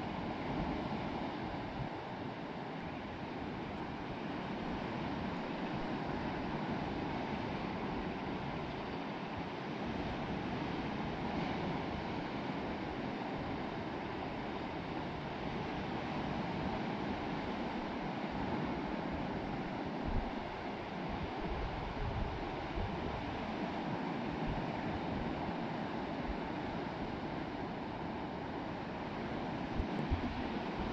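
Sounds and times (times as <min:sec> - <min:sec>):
sea waves breaking on shore: 0:00.0 - 0:30.9
wind buffeting microphone: 0:14.9 - 0:23.6.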